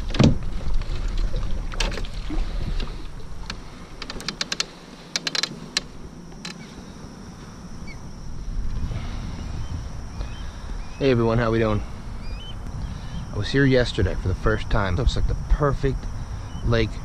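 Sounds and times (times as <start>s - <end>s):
fishing gear clicking and knocking: 3.5s - 6.6s
low rumble: 5.8s - 17.0s.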